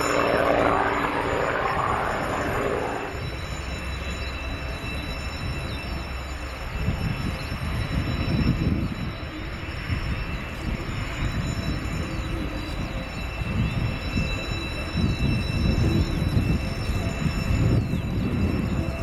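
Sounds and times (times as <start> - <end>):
distant rumbling jet roar: 0.0 - 3.4
thin high jet whine: 0.0 - 19.0.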